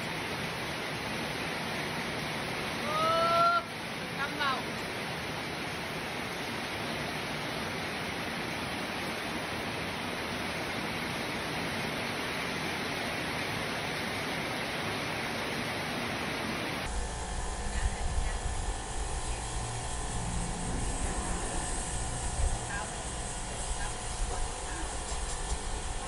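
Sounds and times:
heavy rain: 0.0 - 26.0.

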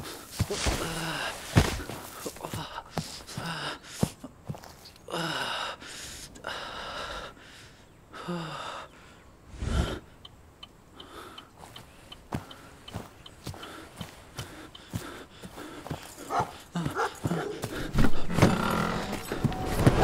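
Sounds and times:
man gasping for breath: 12.4 - 19.4.

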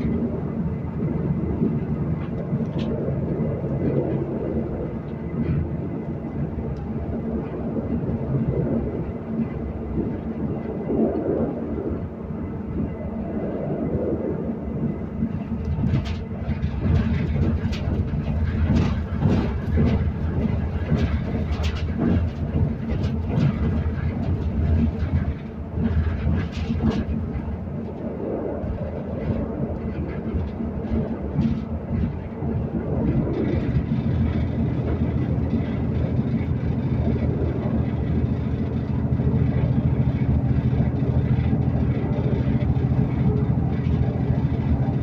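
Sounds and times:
train carriage rumble: 0.0 - 45.0
clatter of knocks and rattles: 15.6 - 28.0, 28.7 - 45.0.

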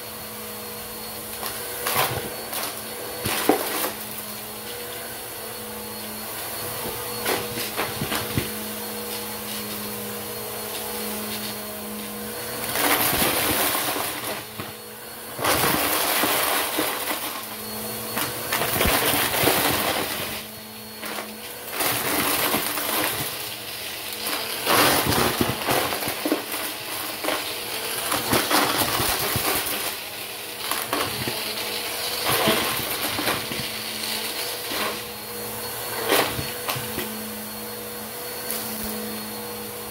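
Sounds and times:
vacuum cleaner motor humming: 0.0 - 39.9.

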